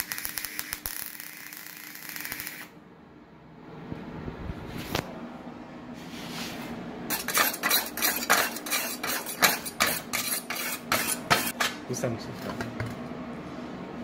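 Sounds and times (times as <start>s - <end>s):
wire brush scratching metal: 7.1s - 11.6s.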